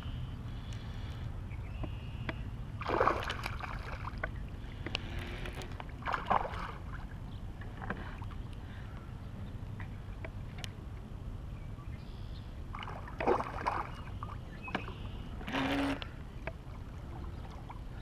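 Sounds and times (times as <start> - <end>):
water lapping at shore: 1.9 - 9.1, 12.7 - 18.0
water splashing: 2.8 - 8.0, 12.7 - 18.0
faint ticks: 4.2 - 5.9.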